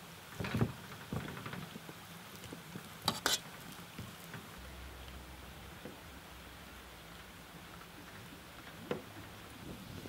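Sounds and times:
spoons mashing potato: 0:03.1 - 0:03.5.

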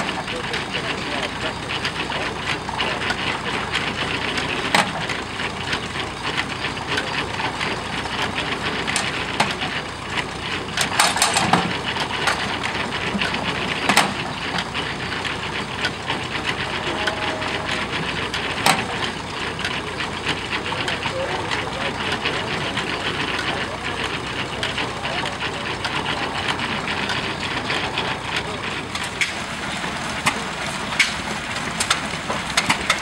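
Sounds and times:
hay baler clattering: 0:00.0 - 0:33.0
sharp knocks of baler: 0:04.6 - 0:05.2, 0:10.8 - 0:14.7, 0:17.8 - 0:19.7, 0:28.9 - 0:33.0.

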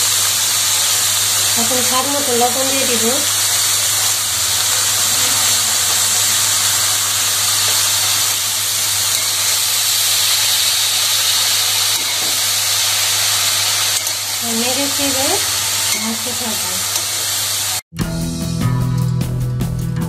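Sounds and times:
greens sizzling in oil: 0:00.0 - 0:17.8
spatula stirring greens: 0:13.5 - 0:14.4.

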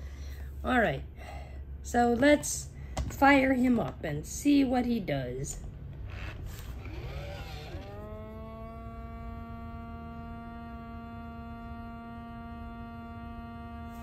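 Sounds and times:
toy electric hum: 0:06.0 - 0:14.0.

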